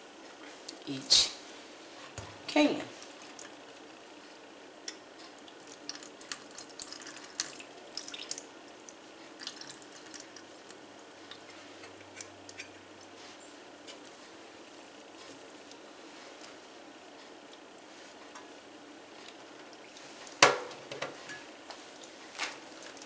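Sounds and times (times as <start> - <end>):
water dripping into metal sink: 4.9 - 10.8.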